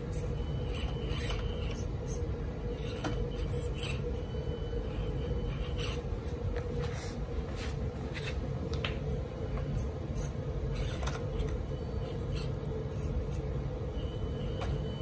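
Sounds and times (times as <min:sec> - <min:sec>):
small electric motor whining: 0:00.0 - 0:06.1.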